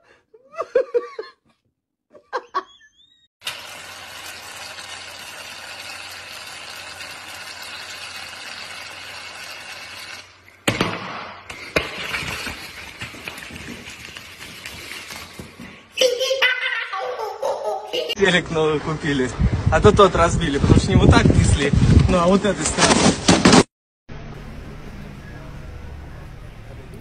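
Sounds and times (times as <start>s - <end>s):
foam crackling and rustling: 11.9s - 15.7s.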